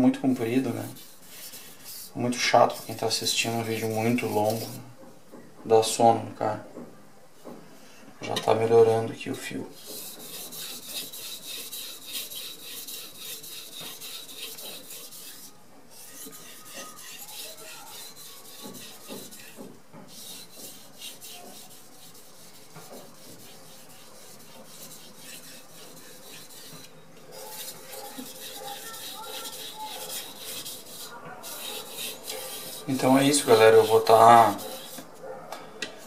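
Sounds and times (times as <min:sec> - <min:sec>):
knife rasping on sharpening stone: 0:09.8 - 0:35.0.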